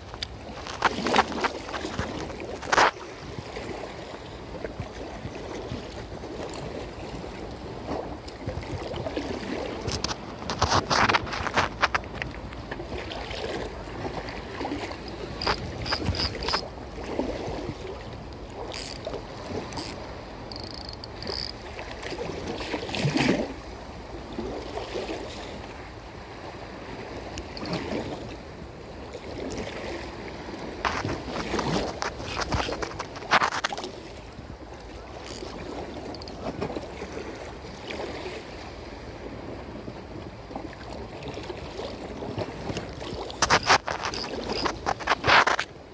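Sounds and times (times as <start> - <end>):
wind buffeting microphone: 0.0 - 23.2
small waves on sea: 0.0 - 45.9.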